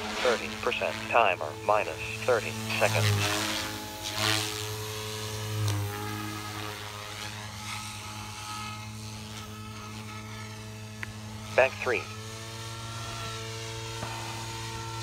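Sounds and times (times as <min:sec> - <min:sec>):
rc helicopter rotor and motor whine: 0:00.0 - 0:15.0.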